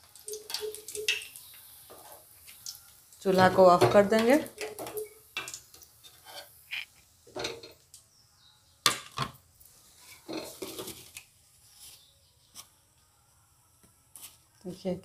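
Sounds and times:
metal utensils clinking on pan: 0:07.3 - 0:07.8, 0:10.2 - 0:11.0.

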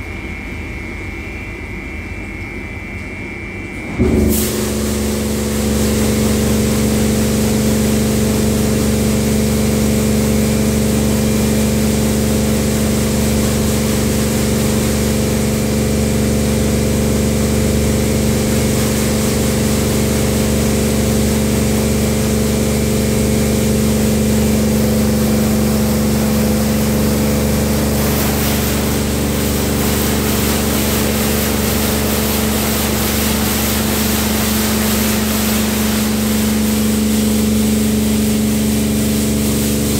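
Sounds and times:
high-pressure pump humming: 0:00.0 - 0:39.9
water jets spraying hiss: 0:25.9 - 0:38.2.

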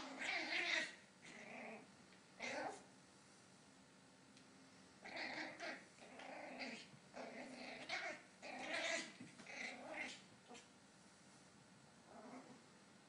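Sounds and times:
puppy growling: 0:00.0 - 0:02.9, 0:05.0 - 0:10.7, 0:12.0 - 0:12.6.

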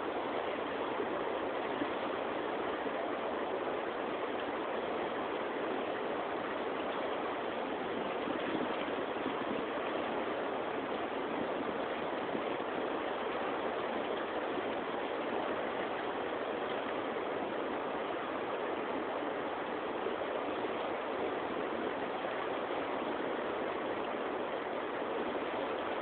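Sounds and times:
fast-flowing river rushing: 0:00.0 - 0:26.0.

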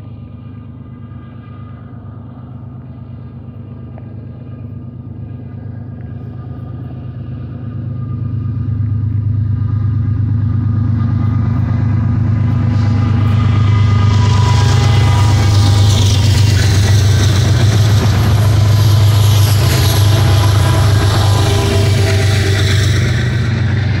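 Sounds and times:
locomotive low rumble: 0:00.0 - 0:24.0
wheels on rails: 0:05.9 - 0:24.0.

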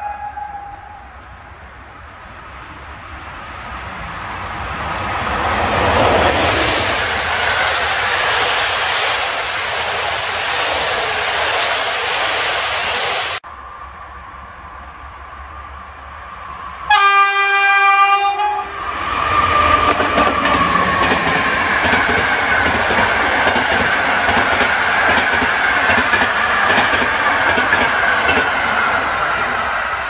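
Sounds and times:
train horn blast: 0:16.9 - 0:18.8
train wheels clattering on rails: 0:19.6 - 0:29.6.

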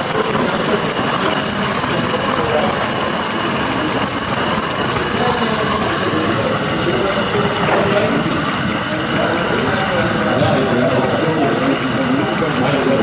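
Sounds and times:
steam locomotive hissing: 0:00.0 - 0:13.0.

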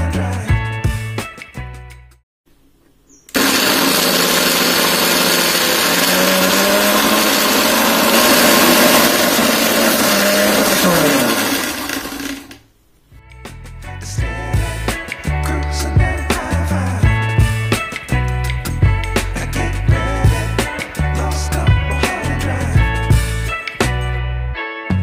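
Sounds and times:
mixer-grinder motor running: 0:03.3 - 0:12.6.

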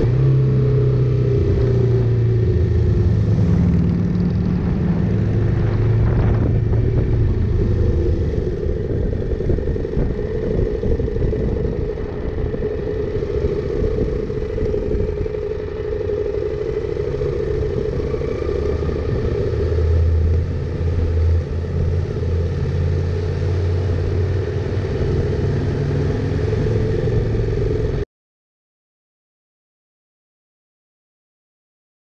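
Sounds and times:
motorcycle engine running: 0:00.0 - 0:28.0.

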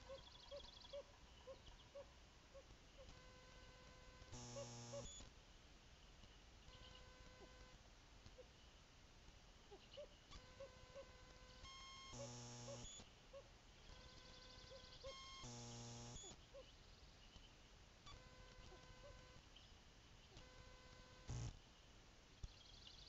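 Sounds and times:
electronic whining tones: 0:03.1 - 0:05.2, 0:10.3 - 0:13.1, 0:13.9 - 0:16.4, 0:20.4 - 0:21.5
short electronic buzz: 0:03.2 - 0:05.3, 0:10.3 - 0:13.1, 0:15.1 - 0:16.4, 0:20.4 - 0:21.6.

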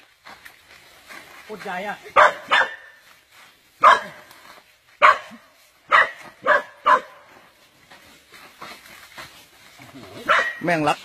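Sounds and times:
dog barking: 0:02.2 - 0:03.0, 0:03.8 - 0:04.3, 0:05.0 - 0:07.3, 0:10.2 - 0:10.7.

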